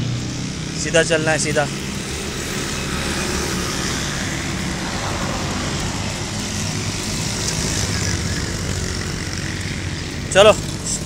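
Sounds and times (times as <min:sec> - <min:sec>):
road traffic rumble: 0:00.0 - 0:11.0.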